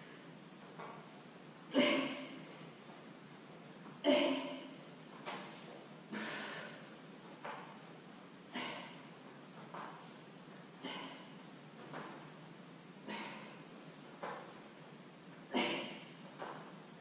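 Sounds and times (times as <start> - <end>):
woman breathing hard: 6.1 - 6.9, 13.0 - 13.7.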